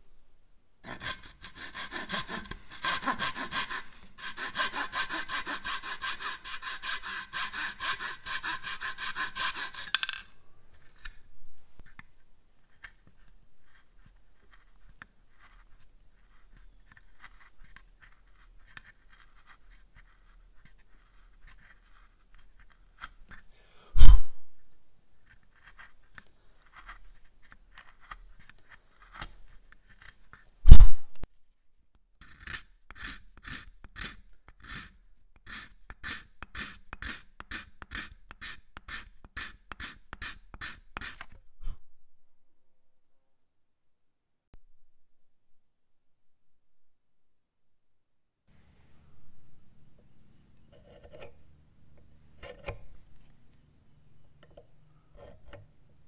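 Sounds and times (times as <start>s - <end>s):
hand saw cutting wood: 0.8s - 10.1s.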